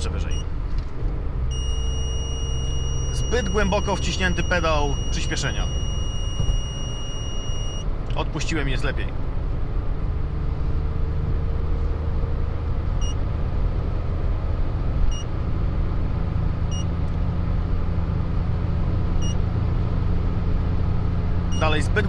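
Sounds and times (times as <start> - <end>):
car engine and tyre hum: 0.0 - 22.0
short high beeps: 1.5 - 7.9, 21.6 - 21.9.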